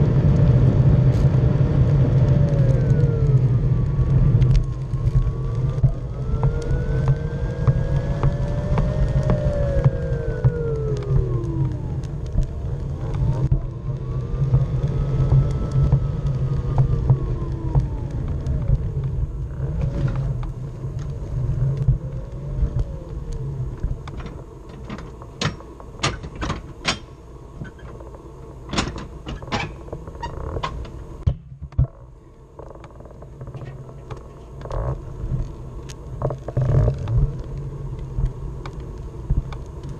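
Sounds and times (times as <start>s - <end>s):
motor whine rising and falling: 0.0s - 24.9s
wheels rumbling over pavement: 0.0s - 39.9s
sharp clicks and knocks: 22.7s - 35.0s.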